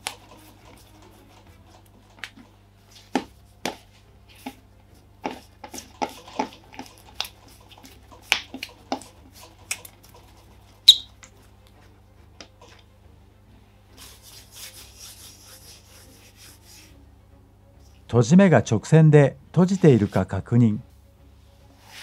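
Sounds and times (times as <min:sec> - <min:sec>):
hands slapping dough: 0:03.1 - 0:04.6, 0:08.2 - 0:09.1
high-pitched squeak: 0:10.9 - 0:11.1.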